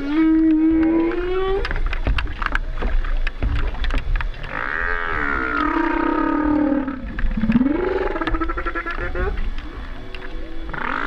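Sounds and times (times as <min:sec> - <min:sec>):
whale calling underwater: 0:00.0 - 0:11.0
clicks and crackles: 0:00.3 - 0:04.8.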